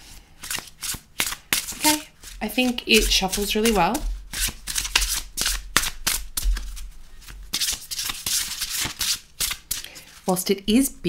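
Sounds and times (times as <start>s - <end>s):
cards being shuffled: 0.4s - 10.4s.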